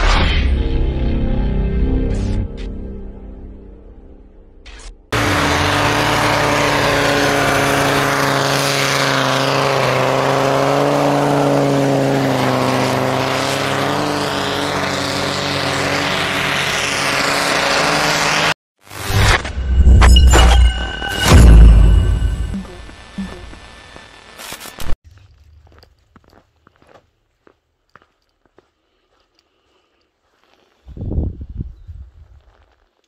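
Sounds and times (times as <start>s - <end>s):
engines labouring in snow: 0.0s - 26.8s
tyres churning snow: 5.1s - 19.1s
steady drone: 13.0s - 24.4s.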